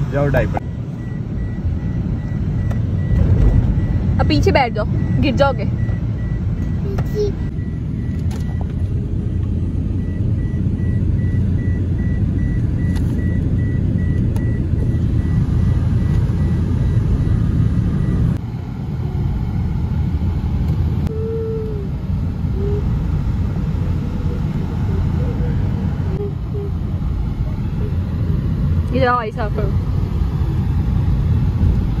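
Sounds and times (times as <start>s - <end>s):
car road and engine rumble: 0.0s - 32.0s
car warning chime beeping: 0.1s - 18.4s.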